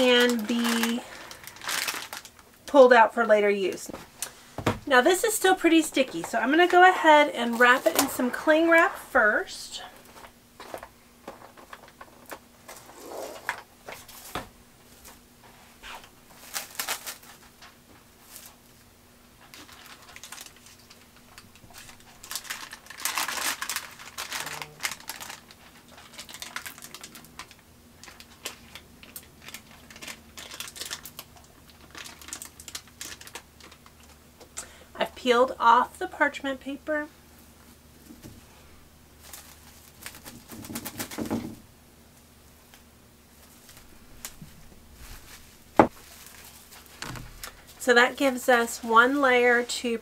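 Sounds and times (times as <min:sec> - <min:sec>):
parchment paper rustling: 0:00.0 - 0:02.4, 0:05.0 - 0:08.9, 0:19.4 - 0:34.2, 0:39.2 - 0:41.5, 0:43.4 - 0:50.0
plastic cling wrap crinkling: 0:00.0 - 0:03.0, 0:03.7 - 0:08.8, 0:15.8 - 0:18.8, 0:19.4 - 0:34.2, 0:39.1 - 0:41.4, 0:43.3 - 0:50.0.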